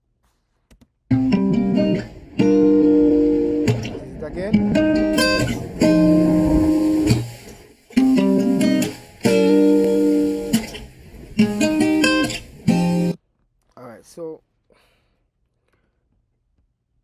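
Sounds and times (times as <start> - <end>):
plucked chords: 1.1 - 13.2
white noise hiss: 1.5 - 13.2.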